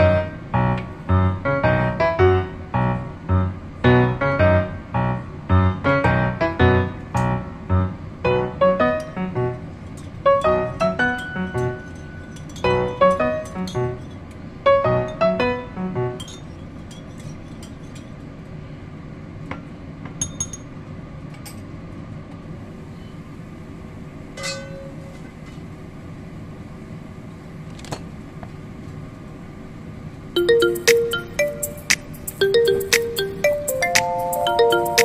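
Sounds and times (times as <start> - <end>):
steady low hiss: 0.0 - 11.0
light tinkling background music: 30.4 - 35.0.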